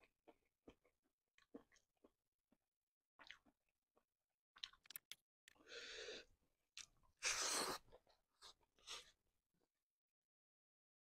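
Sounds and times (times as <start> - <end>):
wet mouth smacks and clicks: 4.6 - 5.6.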